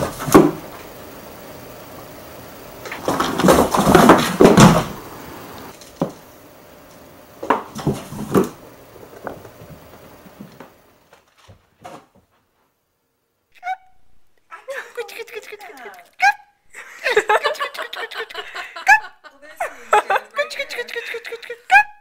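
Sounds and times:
cardboard scuffling and rustling: 0:02.9 - 0:05.0
cat thumping against box: 0:03.0 - 0:05.0.

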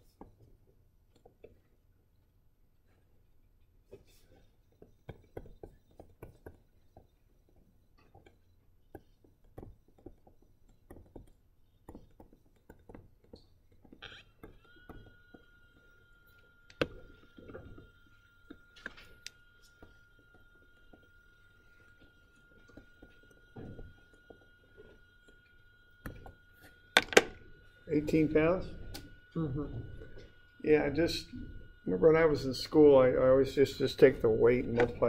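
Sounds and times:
pen tapping on a tablet: 0:04.8 - 0:15.4
steady high whine: 0:05.0 - 0:35.0.

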